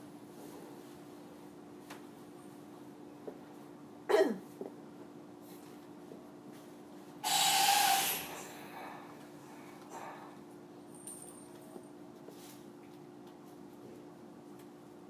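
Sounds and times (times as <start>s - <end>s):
loud hiss: 7.2s - 8.8s.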